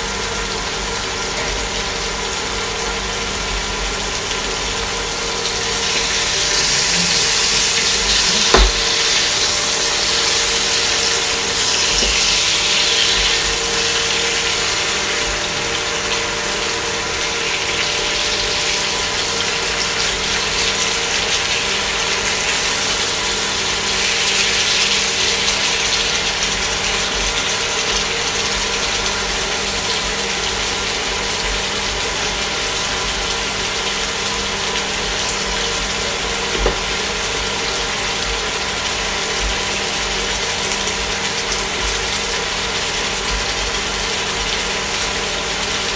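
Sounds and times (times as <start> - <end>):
food sizzling in a frying pan: 0.0 - 45.9
sharp knock: 8.4 - 9.0.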